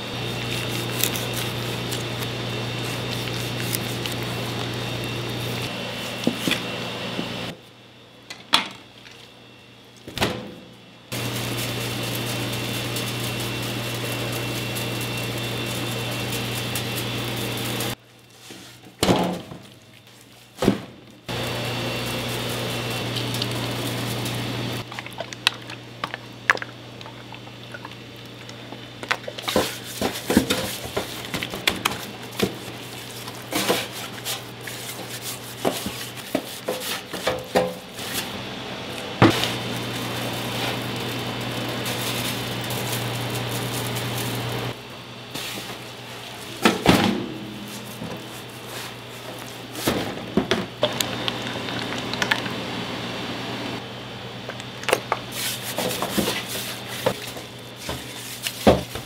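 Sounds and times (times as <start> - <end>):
steady mechanical hum: 0.0 - 59.0.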